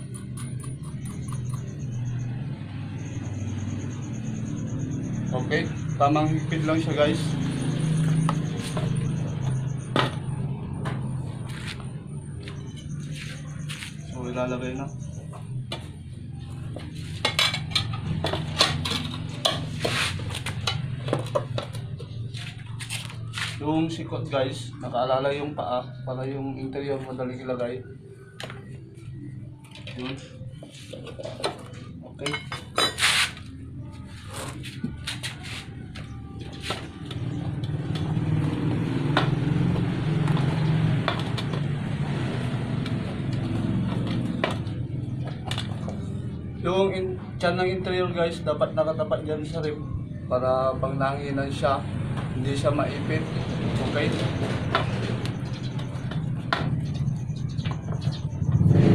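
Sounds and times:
vehicle engine running: 0.0s - 58.9s
tire iron clinking on wheel rim: 16.6s - 22.3s.

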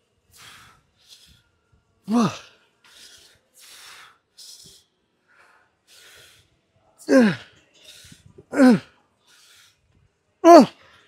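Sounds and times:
man breathing hard: 0.1s - 11.0s
man groaning with effort: 2.1s - 2.5s, 7.0s - 7.6s, 8.5s - 8.9s, 10.4s - 10.8s.

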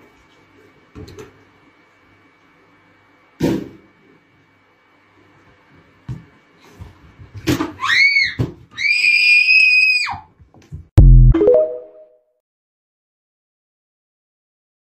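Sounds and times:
child screaming: 7.8s - 10.3s
electronic tone with rising chime: 11.0s - 12.1s.

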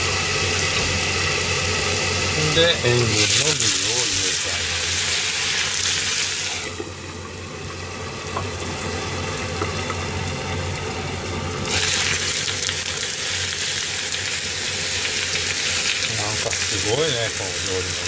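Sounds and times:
food sizzling in a frying pan: 0.0s - 18.0s.

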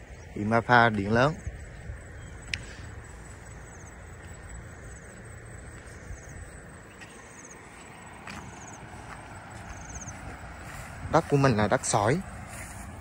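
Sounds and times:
soft clicks: 2.4s - 2.7s.

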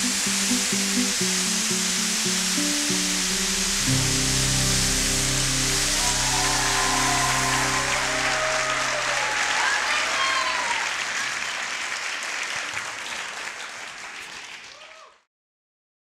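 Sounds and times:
held music note: 0.0s - 9.9s
audience applauding: 5.4s - 15.2s
cheers: 5.7s - 15.3s.

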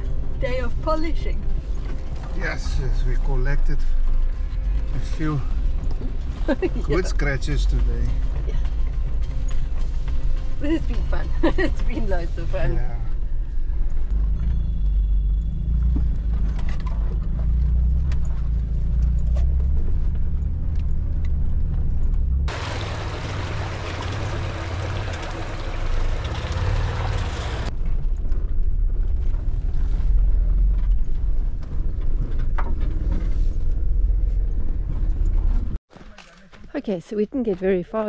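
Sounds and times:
vehicle engine rumbling: 0.0s - 36.7s
vehicle pushing through tall grass: 22.5s - 27.7s.

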